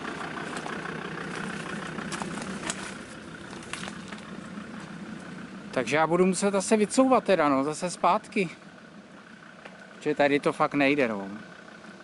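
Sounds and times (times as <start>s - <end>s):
vehicle engine running slowly: 0.0s - 12.0s
twigs and branches snapping: 0.4s - 4.5s.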